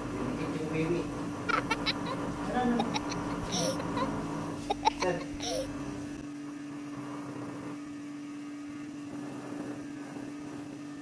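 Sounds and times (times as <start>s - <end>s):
electric hair clipper humming: 1.4s - 6.2s.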